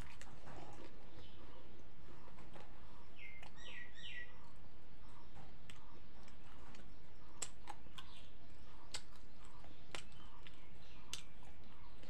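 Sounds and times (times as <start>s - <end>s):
person chewing: 0.0s - 1.3s, 5.6s - 12.0s.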